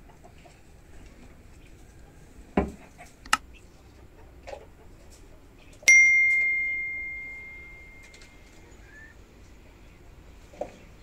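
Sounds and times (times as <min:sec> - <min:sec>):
bright bell ding: 0:05.9 - 0:08.4.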